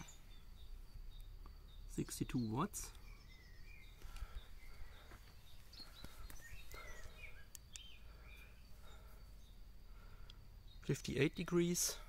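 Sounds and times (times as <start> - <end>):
light clicks: 7.4 - 7.9.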